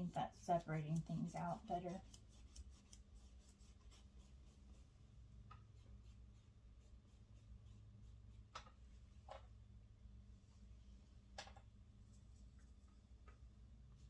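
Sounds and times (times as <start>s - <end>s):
paintbrush strokes on canvas: 0.0s - 9.0s
low steady hum: 0.0s - 14.0s.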